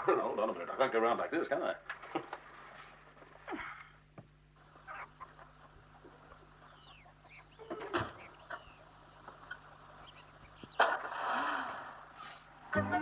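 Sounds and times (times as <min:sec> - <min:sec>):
small birds chirping: 0:02.4 - 0:12.7
chicken squawking: 0:04.6 - 0:11.1.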